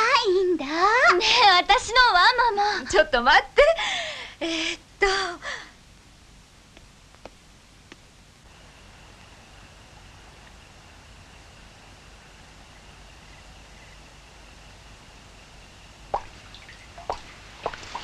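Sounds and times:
low steady hush: 0.0 - 18.0
water drops plopping: 16.2 - 18.0.

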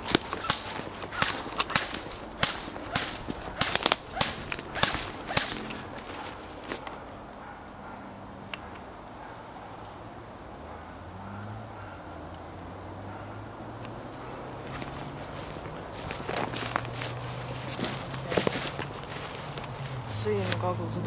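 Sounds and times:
footsteps crunching through dry leaves: 0.0 - 7.0, 14.2 - 21.0
faint outdoor background: 0.0 - 21.0.

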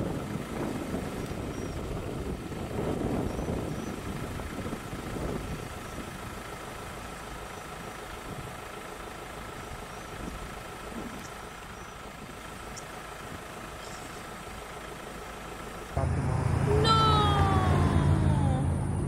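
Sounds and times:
vehicle engine idling: 0.0 - 19.0.

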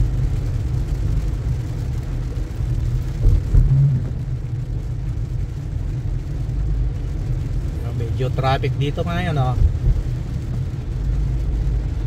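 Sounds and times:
car engine and tyre rumble: 0.0 - 12.0
heavy rain: 0.0 - 12.0
low thumps: 3.0 - 4.6.

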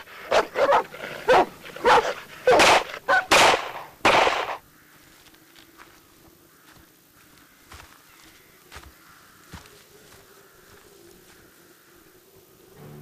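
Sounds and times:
dogs barking: 0.0 - 4.6.

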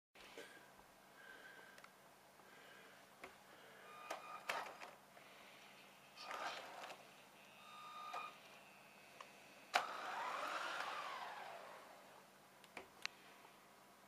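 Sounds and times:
toy car electric motor whine: 9.7 - 12.1.

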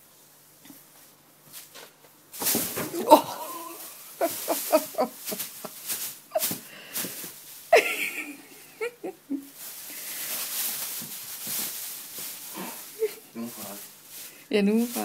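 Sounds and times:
plastic bag crinkling: 2.4 - 7.8, 9.5 - 15.0
person laughing softly: 2.9 - 6.7, 7.7 - 9.6, 12.6 - 13.4.

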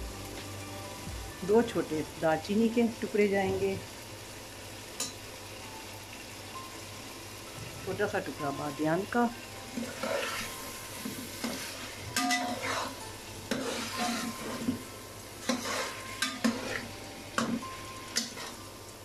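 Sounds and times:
food sizzling in oil: 0.0 - 19.0
metal spoon scraping metal pot: 15.5 - 16.9.

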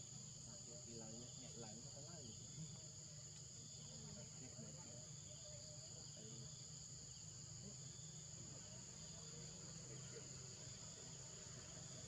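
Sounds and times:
high-pitched insect chorus drone: 0.0 - 12.0.

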